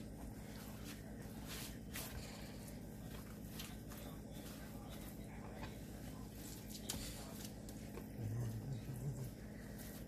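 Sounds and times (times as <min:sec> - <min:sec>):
paper towel patting fish: 0:00.0 - 0:10.0.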